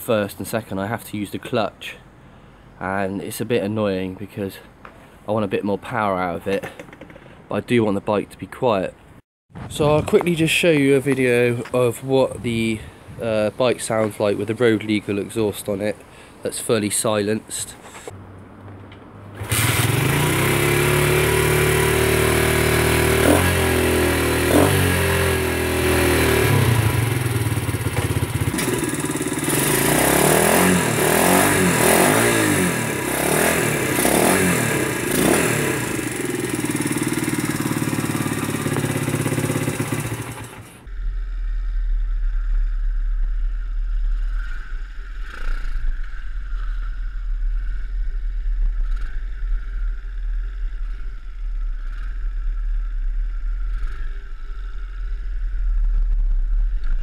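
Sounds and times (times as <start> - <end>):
wind rumble on microphone: 12.2 - 13.5, 40.9 - 57.0
motorbike engine idling and revving: 18.2 - 57.0.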